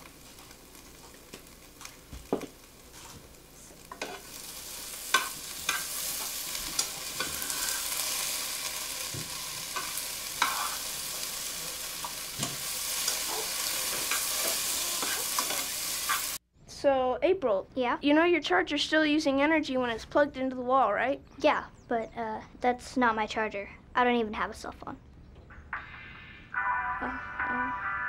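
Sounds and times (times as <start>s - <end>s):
potatoes sizzling in a frying pan: 0.0s - 16.4s
spoon stirring and knocking pan: 3.9s - 4.3s, 5.1s - 7.5s, 9.0s - 10.8s, 11.9s - 16.4s.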